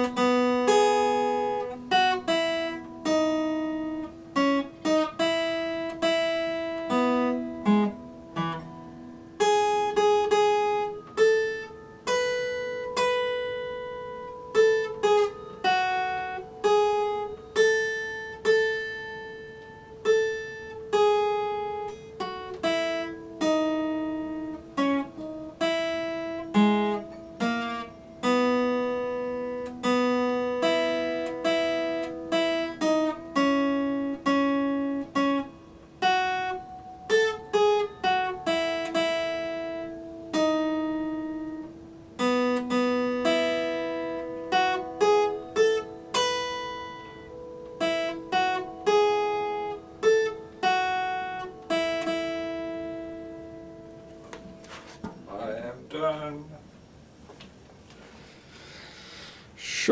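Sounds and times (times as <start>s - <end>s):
fingerpicked acoustic guitar: 0.0s - 59.9s.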